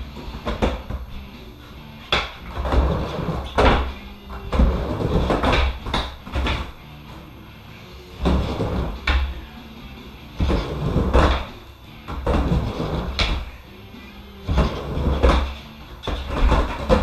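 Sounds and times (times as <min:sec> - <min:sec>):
skateboard rolling on wooden ramp: 0:00.0 - 0:01.1, 0:02.1 - 0:06.8, 0:08.2 - 0:09.3, 0:10.4 - 0:13.6, 0:14.4 - 0:17.0
skateboard trucks clacking on coping: 0:10.4 - 0:11.5, 0:14.5 - 0:17.0.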